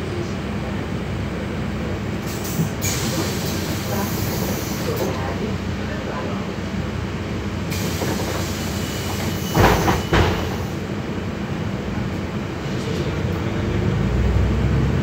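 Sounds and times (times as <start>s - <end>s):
bus engine running: 0.0s - 15.0s
hiss: 2.2s - 5.0s, 7.7s - 10.8s.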